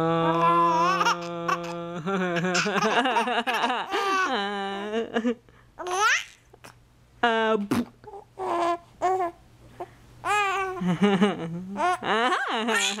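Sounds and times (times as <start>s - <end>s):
adult holding a vocal note: 0.0s - 2.2s
baby cooing and giggling: 0.0s - 4.9s, 5.8s - 6.8s, 8.0s - 9.4s, 10.2s - 10.9s, 11.6s - 13.0s.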